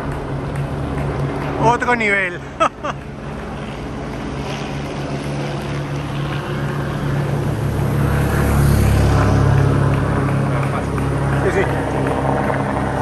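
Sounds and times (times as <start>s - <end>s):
helicopters overhead: 0.0s - 13.0s
motorcycle engine passing: 3.0s - 13.0s.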